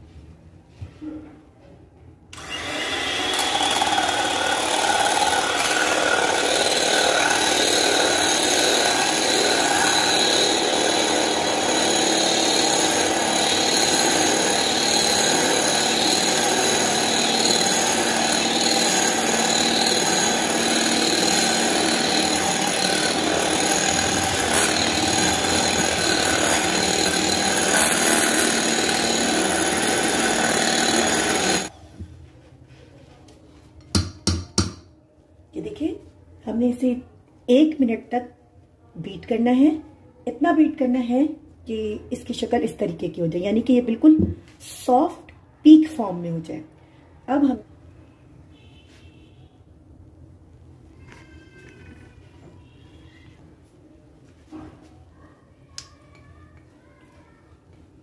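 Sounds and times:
electric hand mixer whipping cream: 2.4 - 31.7.

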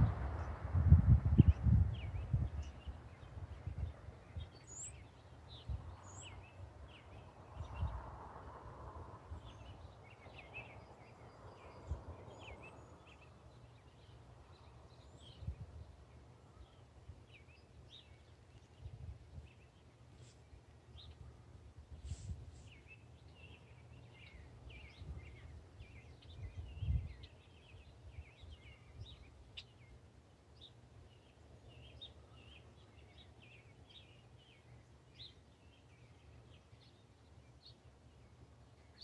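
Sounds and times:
wind gusts on microphone: 0.0 - 16.1, 18.7 - 19.7, 20.9 - 29.4
songbirds chirping: 0.0 - 39.0.

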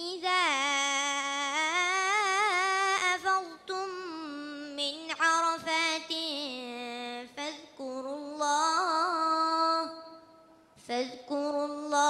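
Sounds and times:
boy reciting melodically: 0.0 - 12.0.

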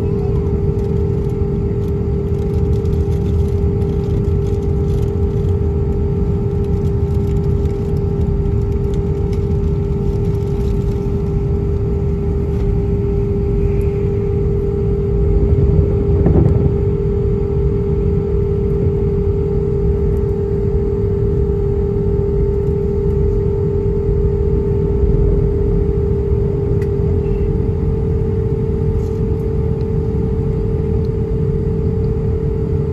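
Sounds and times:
jet engines idling in cabin: 0.0 - 32.9.

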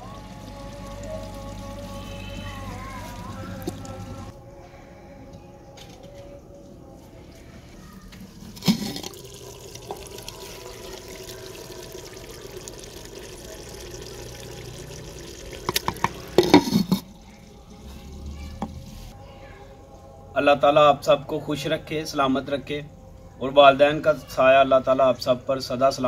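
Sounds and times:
spoon knocking clay pot: 15.7 - 17.1
spoon scraping pot: 15.7 - 17.1.

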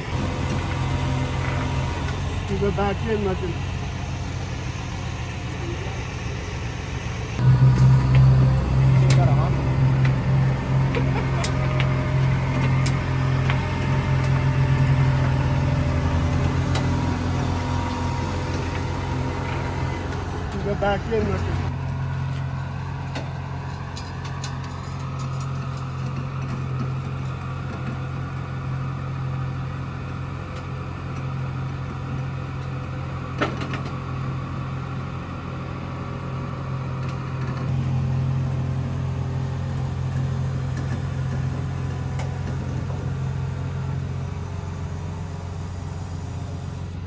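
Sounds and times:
car engine and road drone: 0.0 - 47.0
rising tone: 7.3 - 20.6.

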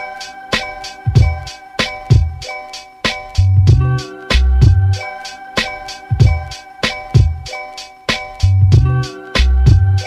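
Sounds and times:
background music with a beat: 0.0 - 10.0
deep bass notes: 3.4 - 5.0, 8.5 - 10.0.

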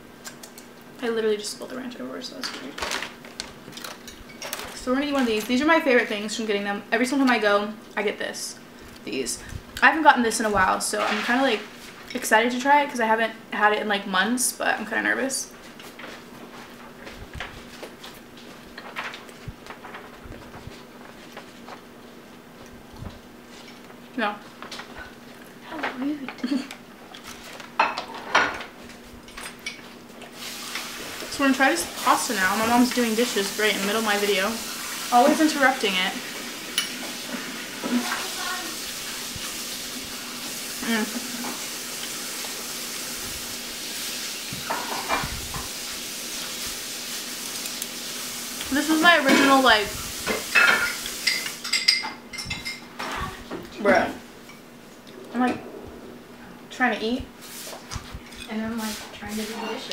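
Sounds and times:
kitchen tap running: 30.4 - 52.8
dishes clinking: 50.3 - 53.3.

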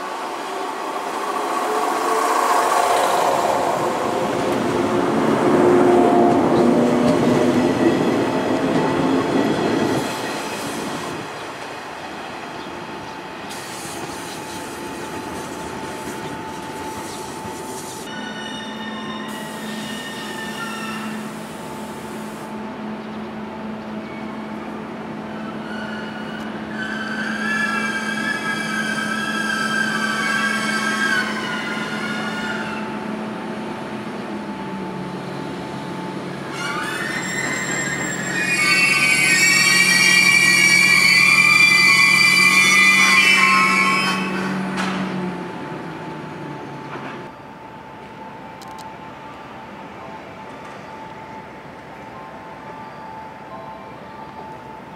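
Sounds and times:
locomotive hum: 0.0 - 52.7
electric train moving: 0.0 - 54.9
high wheel squeal: 15.9 - 21.5, 25.4 - 33.0, 36.4 - 44.8.

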